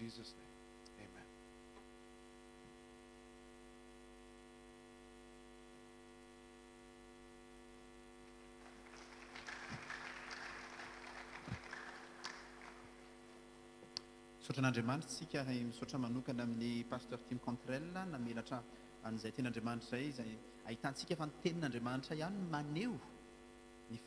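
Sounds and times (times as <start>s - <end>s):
mains hum: 0.0s - 24.0s
audience applause: 8.6s - 13.1s.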